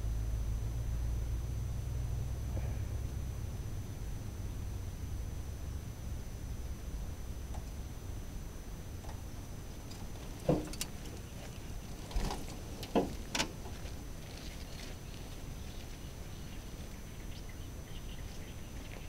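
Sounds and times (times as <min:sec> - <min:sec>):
low outdoor rumble: 0:00.0 - 0:19.0
knocks and rustles: 0:09.9 - 0:15.9.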